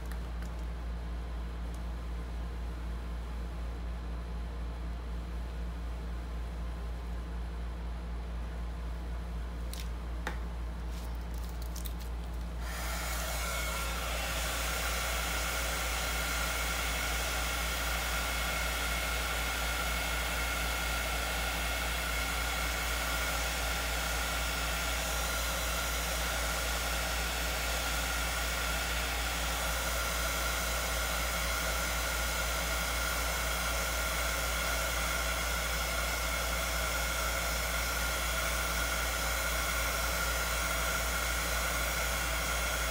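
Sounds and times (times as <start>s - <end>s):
heat gun blowing air: 12.6s - 42.9s.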